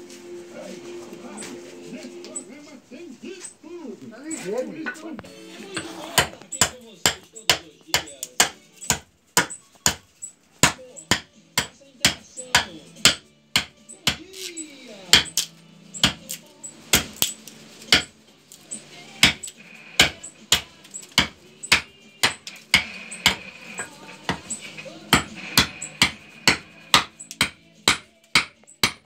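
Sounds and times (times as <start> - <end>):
hatchet chopping wood: 5.8 - 14.5, 15.1 - 18.2, 19.2 - 29.0.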